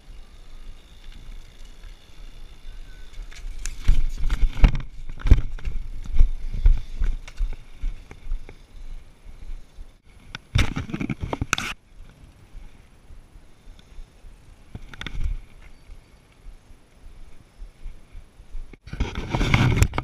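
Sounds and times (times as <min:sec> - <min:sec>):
bike knocking and rattling: 0:00.0 - 0:12.4
bike tyres rumbling on asphalt: 0:00.0 - 0:20.0.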